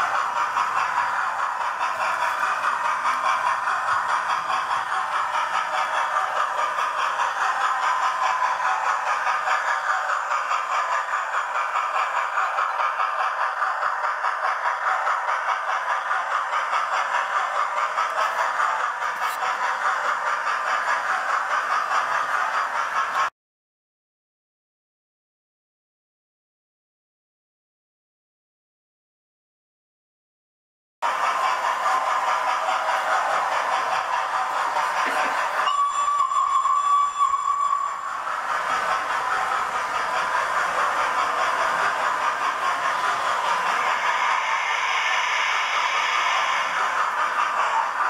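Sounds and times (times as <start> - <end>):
model train running on track: 0.0 - 23.3, 31.0 - 48.0.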